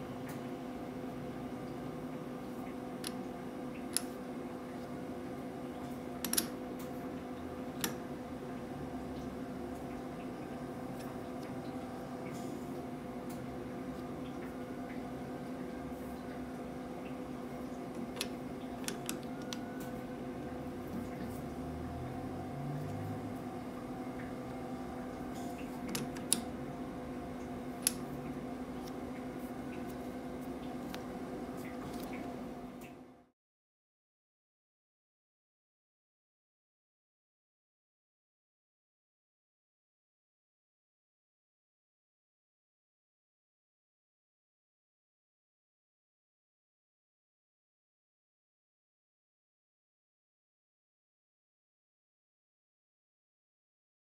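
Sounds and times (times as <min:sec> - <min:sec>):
workshop hum: 0:00.0 - 0:33.3.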